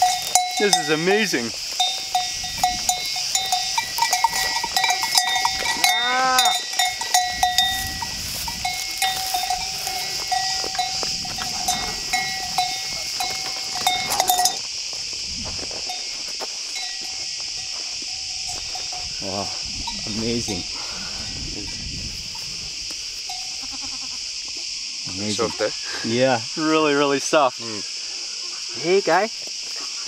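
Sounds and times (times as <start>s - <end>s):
animal bells clinking: 0.0s - 14.9s, 15.7s - 21.9s, 23.2s - 23.8s
insects buzzing: 0.0s - 30.0s
animal bleating: 5.5s - 6.6s, 23.4s - 24.3s.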